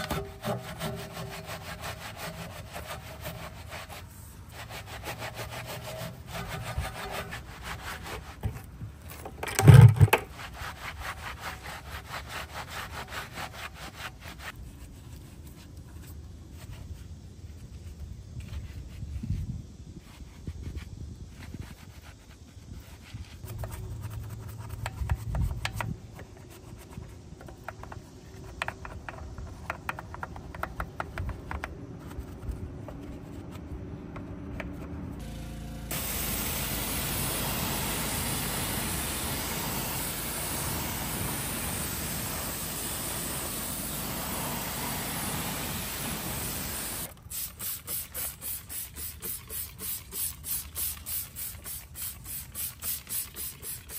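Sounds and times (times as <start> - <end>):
brush scrubbing car wheel: 0.0 - 8.8, 10.2 - 19.2, 20.0 - 28.6, 35.9 - 53.9
spray hiss: 35.2 - 53.9
trigger spray bottle squirting: 36.5 - 53.9.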